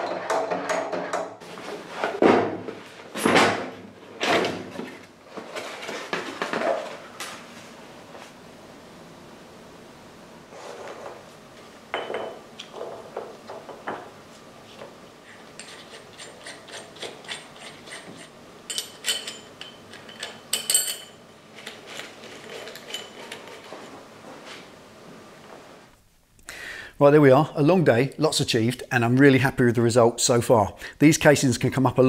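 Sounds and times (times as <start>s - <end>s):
metal parts clinking: 18.7s - 23.6s.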